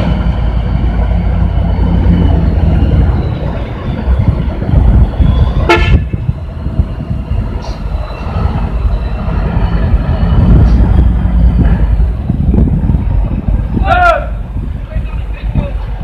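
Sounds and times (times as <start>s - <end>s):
truck diesel engine running: 0.0s - 16.0s
truck horn toot: 5.6s - 6.2s.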